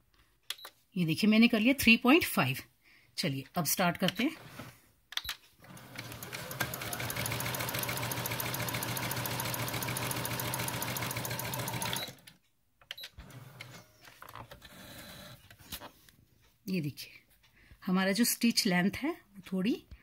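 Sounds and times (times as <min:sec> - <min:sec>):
sewing machine stitching: 0:05.6 - 0:12.4, 0:13.2 - 0:13.9.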